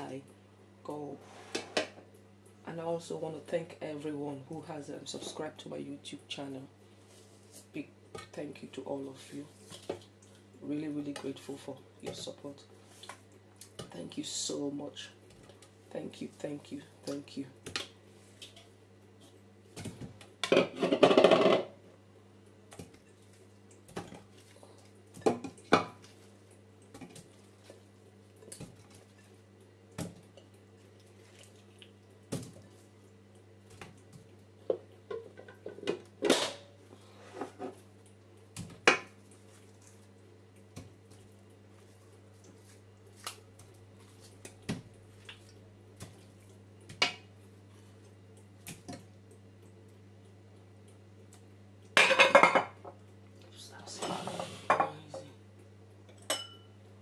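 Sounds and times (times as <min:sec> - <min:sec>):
faint steady hum: 0:00.0 - 0:57.0
meat and bowls clattering against pot: 0:19.9 - 0:21.7.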